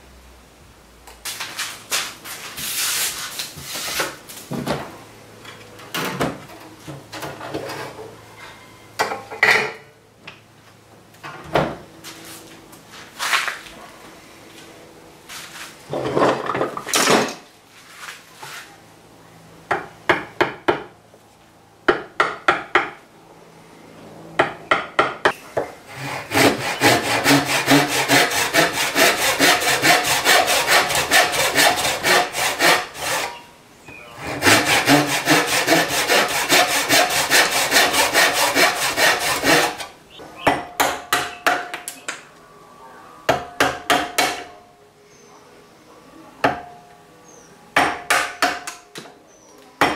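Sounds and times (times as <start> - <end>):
handsaw cutting wood: 25.9 - 33.4, 34.2 - 39.9.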